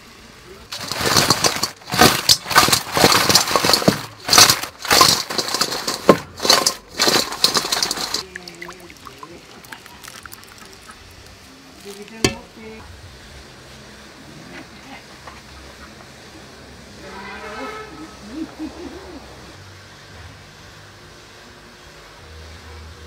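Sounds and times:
fried chicken crackling and rustling: 0.6 - 12.8.

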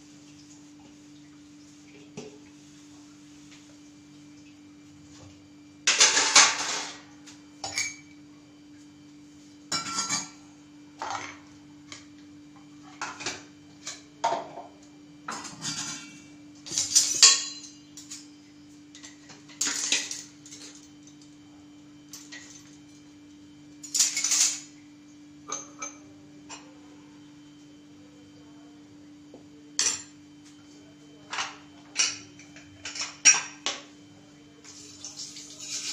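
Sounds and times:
metal utensils clinking: 15.4 - 18.2, 23.8 - 24.7, 34.7 - 35.9.

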